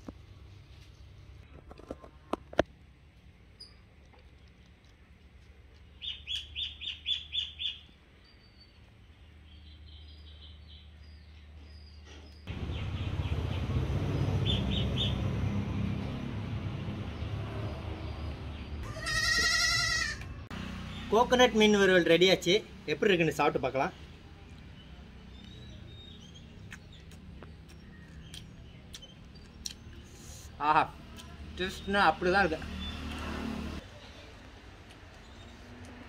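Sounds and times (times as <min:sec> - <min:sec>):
small bird chirping: 0:03.5 - 0:03.9, 0:05.9 - 0:13.4, 0:24.0 - 0:30.5.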